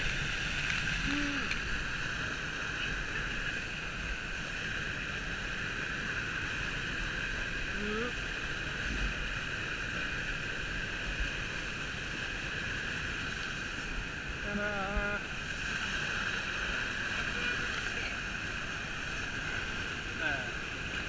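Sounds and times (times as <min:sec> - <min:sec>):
waterfall into plunge pool: 0:00.0 - 0:21.0
person calling: 0:01.0 - 0:01.6, 0:14.4 - 0:15.2.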